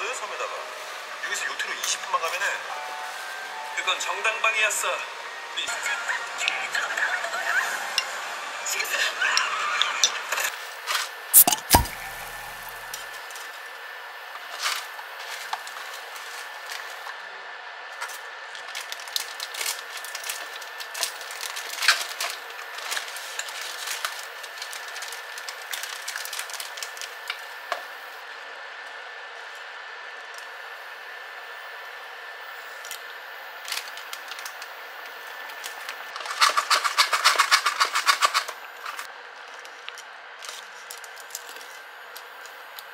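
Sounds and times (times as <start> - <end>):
water boiling in a saucepan: 7.1 - 17.1.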